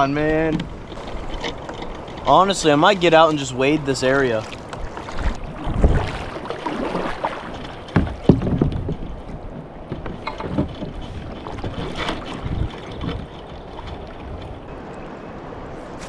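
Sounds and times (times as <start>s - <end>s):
water moving against boat: 0.0s - 16.0s
hollow knocks on plastic kayak hull: 5.1s - 13.2s.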